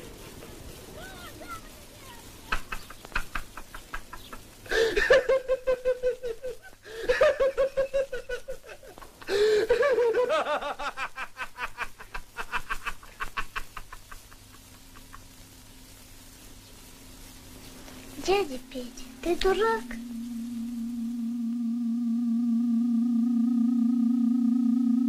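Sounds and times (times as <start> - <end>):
person laughing hard: 2.5 - 15.2.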